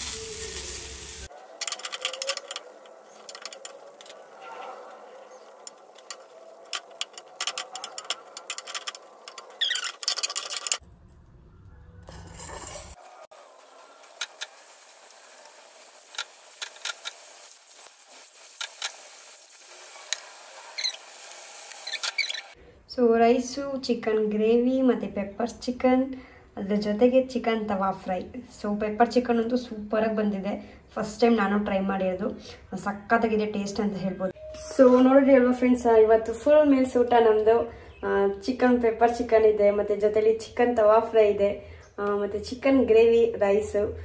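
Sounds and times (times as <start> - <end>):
chicken frying on a pan: 0.0 - 1.4, 13.2 - 22.6
steel spoon scraping a pan: 12.1 - 14.8.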